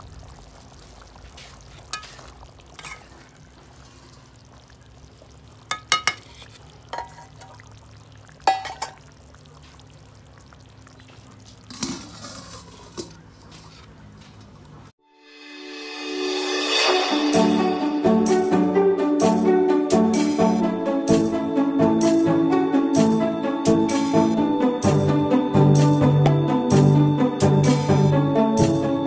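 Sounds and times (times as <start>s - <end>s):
metal spatula clinking on pot: 2.8s - 3.1s, 5.7s - 7.6s, 8.5s - 9.0s.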